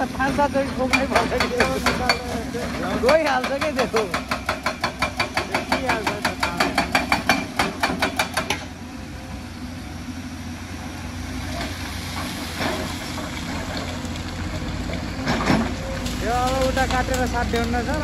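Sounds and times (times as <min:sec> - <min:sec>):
diesel engine running: 0:00.0 - 0:18.0
hydraulic breaker hammering rock: 0:00.1 - 0:08.7.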